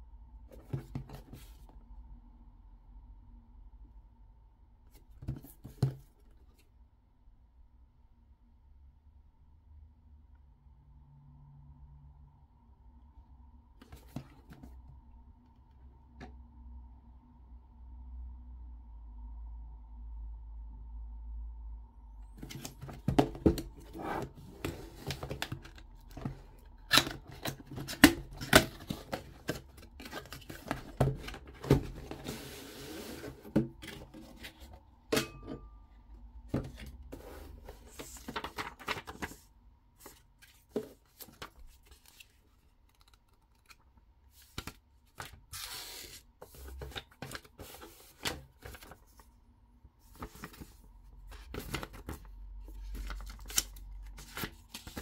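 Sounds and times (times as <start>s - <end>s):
packaging being handled: 22.4s - 34.7s.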